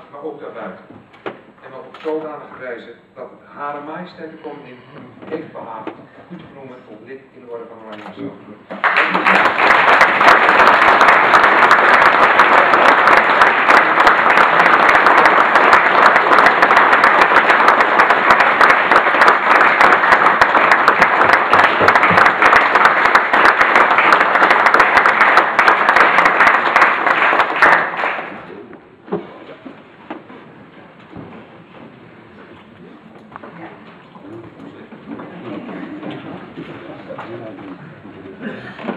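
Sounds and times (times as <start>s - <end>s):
audience applause: 8.7s - 28.5s.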